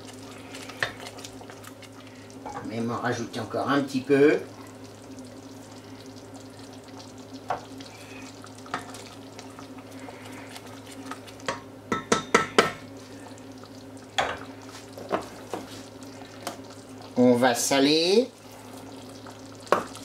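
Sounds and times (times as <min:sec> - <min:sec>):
wooden spoon stirring sauce: 0:00.0 - 0:02.6, 0:14.4 - 0:20.0
sauce bubbling softly: 0:00.0 - 0:11.8, 0:12.4 - 0:20.0
spoon knocking against pan: 0:11.5 - 0:12.8.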